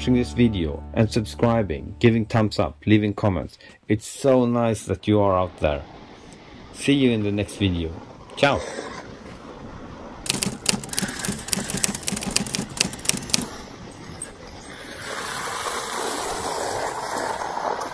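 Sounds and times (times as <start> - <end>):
typewriter key clicks: 10.3 - 13.5
dog sled rushing on snow: 13.2 - 17.9.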